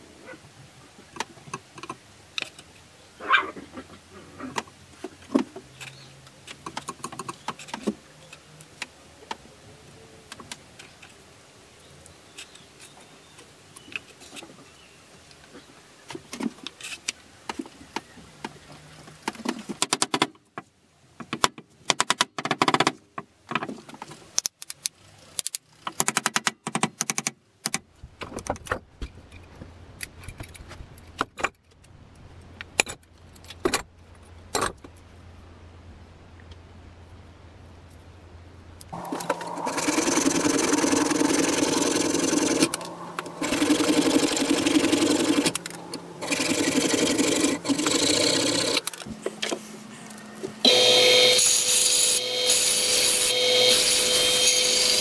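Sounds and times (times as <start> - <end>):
small parts clicking on wooden workbench: 21.2 - 33.9
low steady hum: 33.2 - 51.4.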